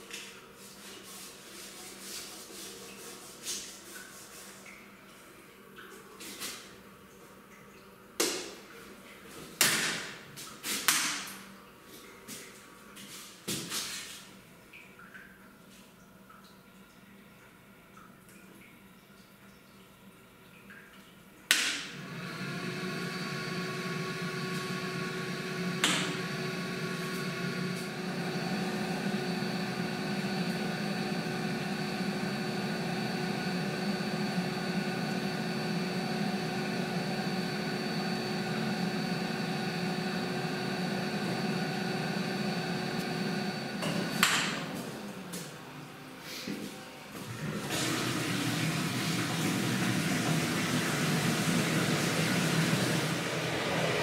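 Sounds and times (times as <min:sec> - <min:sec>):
pasteurizer machinery humming: 0:21.9 - 0:54.0.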